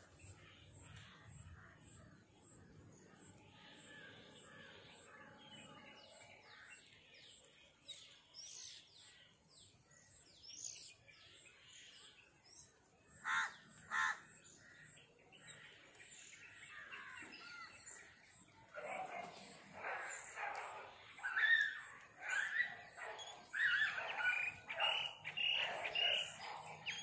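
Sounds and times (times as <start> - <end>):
loud harsh bird calls: 13.2 - 15.0, 16.4 - 27.0
birds chirping and whistling: 18.8 - 27.0.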